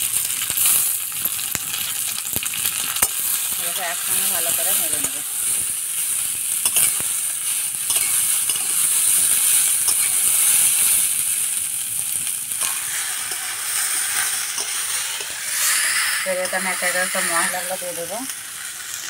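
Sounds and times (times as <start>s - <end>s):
vegetables sizzling in hot oil: 0.0s - 19.0s
metal spatula clicking on pan: 7.9s - 8.8s, 14.5s - 15.4s.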